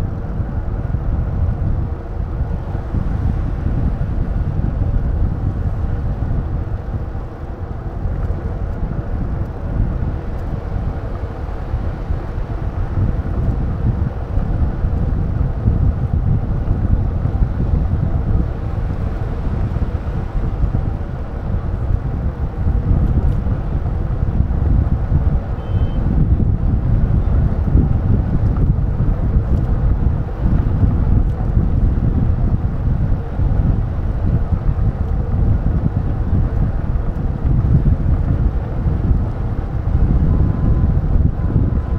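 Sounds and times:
road and traffic rumble: 0.0 - 41.9
wind buffeting microphone: 0.0 - 41.9
faint high beep: 25.6 - 26.0.

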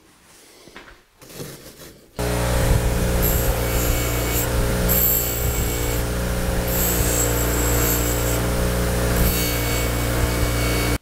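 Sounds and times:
bench grinder motor hum: 2.2 - 11.0
steel grinding whine: 2.2 - 11.0.

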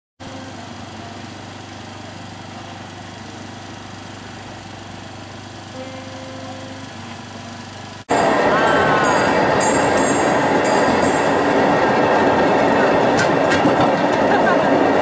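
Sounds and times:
small engine droning: 0.2 - 14.7
faint tone: 5.7 - 7.0.

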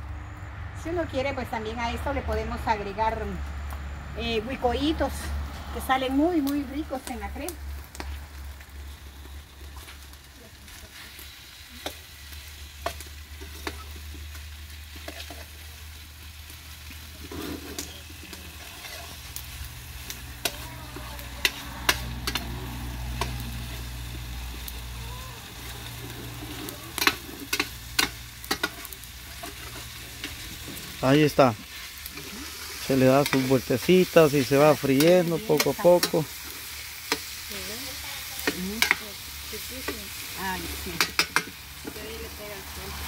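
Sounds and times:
vegetables sizzling in frying pan: 4.2 - 43.0
metal spoon scraping pan: 17.2 - 19.3, 26.0 - 30.8, 31.6 - 36.2.

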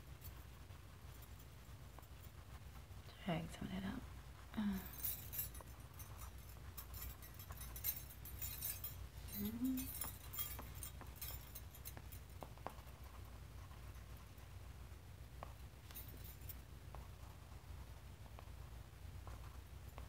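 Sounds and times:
pastel scratching on paper: 0.0 - 4.6
low room hum: 0.0 - 20.0.

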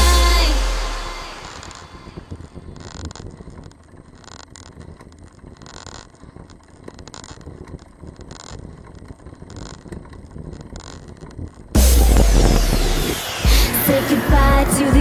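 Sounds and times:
bike tyres rumbling on asphalt: 1.3 - 13.1
wind rushing over microphone: 6.3 - 15.0.

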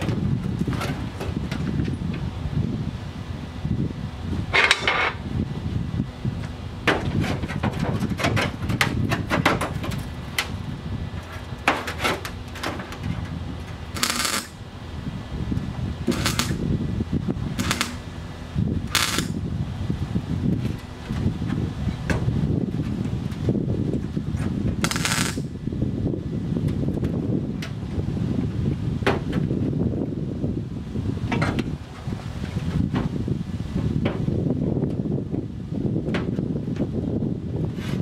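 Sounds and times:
welder crackling buzzes: 12.2 - 14.7, 15.6 - 16.8, 17.5 - 19.5, 24.8 - 25.6.

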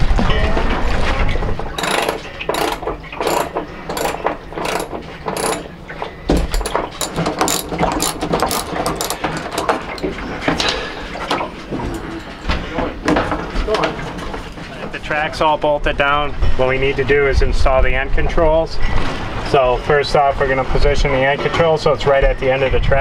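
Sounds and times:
ratchet wrench clicking: 1.8 - 5.7, 6.4 - 10.1.

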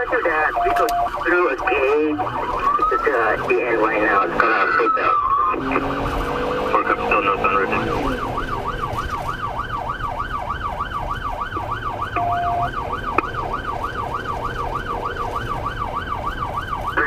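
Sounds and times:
police siren yelping: 0.0 - 17.0
short steady beep: 12.2 - 12.7.

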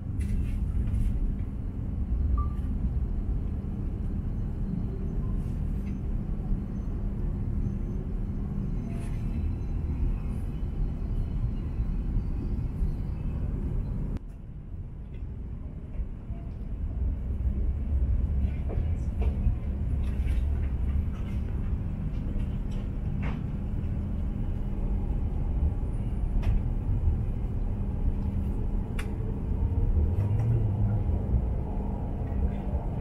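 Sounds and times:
train rumble inside cabin: 0.0 - 33.0.

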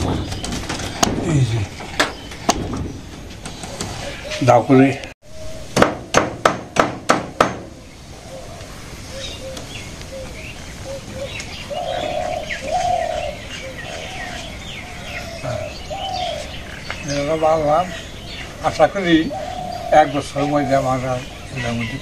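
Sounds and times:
sharp knocks: 0.0 - 3.9, 5.8 - 7.7
small birds chirping: 0.0 - 5.7, 7.4 - 22.0
doves cooing: 0.0 - 5.8, 7.7 - 22.0.

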